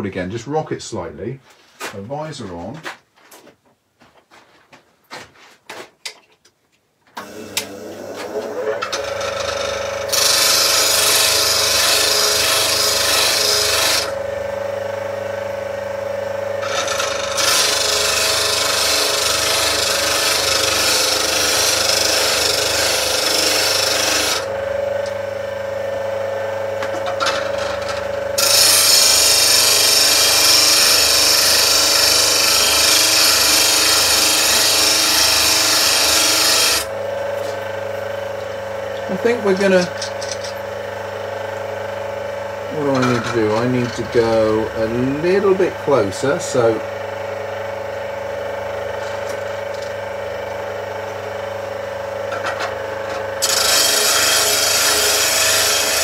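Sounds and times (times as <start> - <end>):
bench grinder motor hum: 7.2 - 56.0
chisel grinding hiss: 28.4 - 36.9, 53.4 - 56.0.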